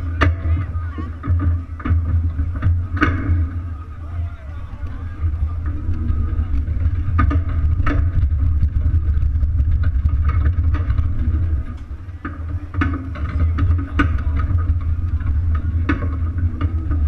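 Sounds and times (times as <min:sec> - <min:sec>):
rattles and knocks: 0:00.0 - 0:17.0
wheels rumbling over pavement: 0:00.0 - 0:17.0.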